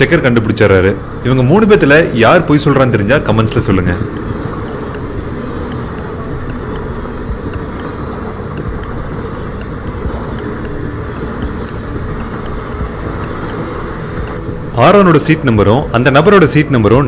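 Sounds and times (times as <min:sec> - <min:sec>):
moving train: 0:00.0 - 0:17.0
stopwatch ticking: 0:02.6 - 0:16.2.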